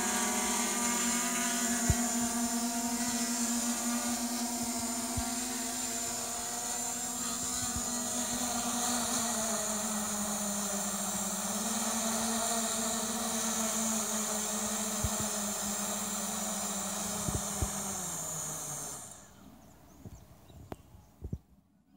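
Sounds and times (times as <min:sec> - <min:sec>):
drone motors spinning down: 0:00.0 - 0:19.7
drone motors humming: 0:00.0 - 0:20.2.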